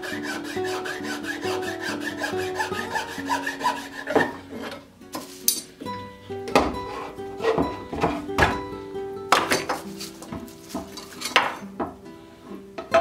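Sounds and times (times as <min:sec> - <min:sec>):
hand file rasping on wood: 0:00.0 - 0:04.7.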